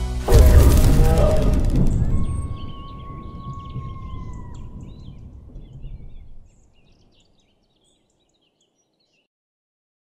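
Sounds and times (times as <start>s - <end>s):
low rumble: 0.3s - 6.7s
birds chirping: 0.3s - 9.3s.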